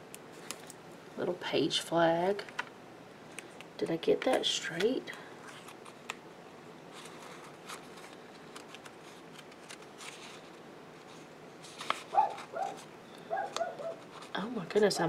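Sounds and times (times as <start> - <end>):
sticker paper rustling: 6.9 - 14.5.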